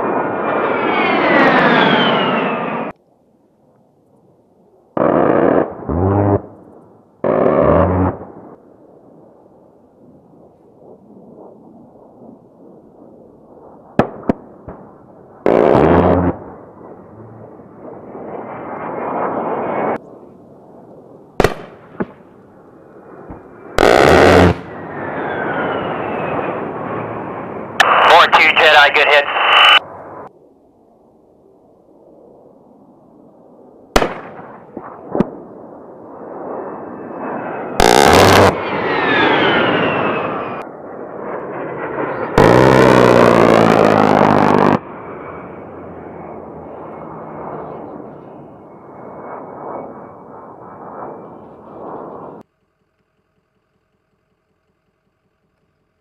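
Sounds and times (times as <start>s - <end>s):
jet engine whine: 0.0s - 56.0s
rotary cannon firing burst: 7.2s - 8.3s, 23.8s - 26.5s, 37.8s - 40.6s, 42.3s - 44.8s
sharp cracks: 23.3s - 24.8s, 34.0s - 35.3s, 37.8s - 38.6s, 42.4s - 44.8s.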